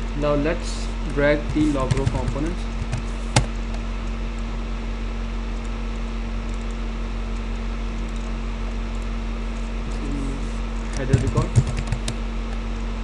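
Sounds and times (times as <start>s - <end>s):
electrical hum: 0.0s - 13.0s.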